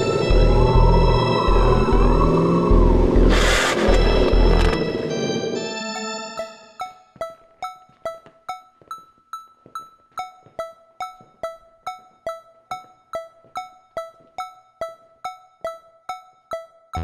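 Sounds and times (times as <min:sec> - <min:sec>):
repeated keyboard note: 0:10.2 - 0:17.0.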